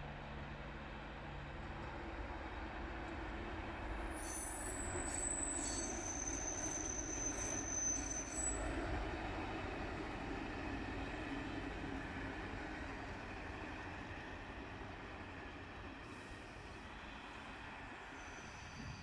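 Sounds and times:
low rumble of engine and wheels: 0.0s - 19.0s
high-pitched wheel squeal: 4.1s - 8.6s, 18.1s - 19.0s.

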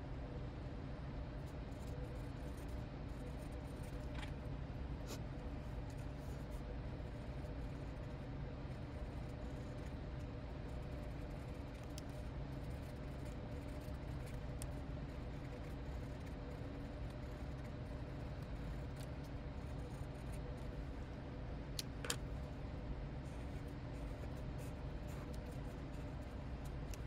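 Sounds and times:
pen writing on paper: 5.9s - 10.0s, 10.6s - 21.0s, 23.5s - 27.0s.

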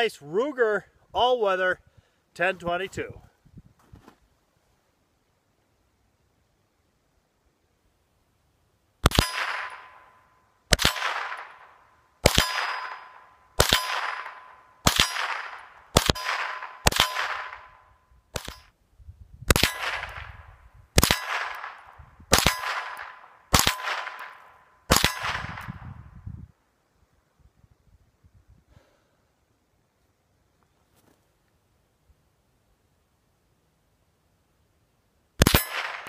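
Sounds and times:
rifle shots: 9.0s - 10.1s, 10.7s - 18.7s, 19.5s - 25.8s, 35.4s - 36.0s.

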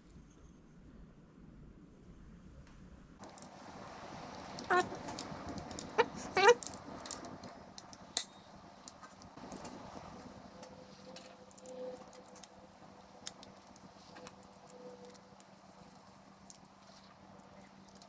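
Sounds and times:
metal parts and screwdriver handled: 3.2s - 9.8s, 10.6s - 18.0s.

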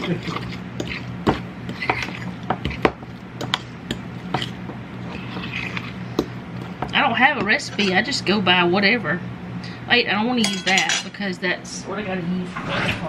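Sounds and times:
fork scraping ceramic bowl: 0.0s - 6.8s, 7.4s - 8.2s.

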